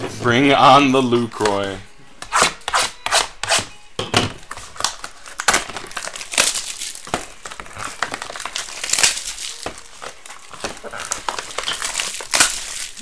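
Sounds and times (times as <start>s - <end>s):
cardboard rustling and crinkling: 4.4s - 13.0s.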